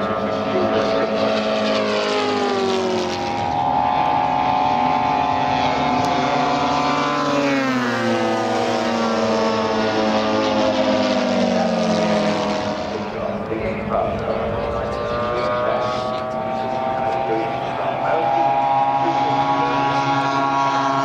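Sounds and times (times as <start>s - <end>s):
model plane propeller engines droning: 0.0s - 21.0s.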